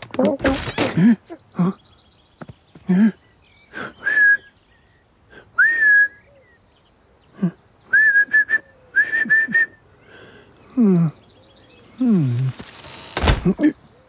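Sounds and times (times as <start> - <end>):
man whistling: 4.0 - 4.5, 5.6 - 6.2, 7.9 - 9.8.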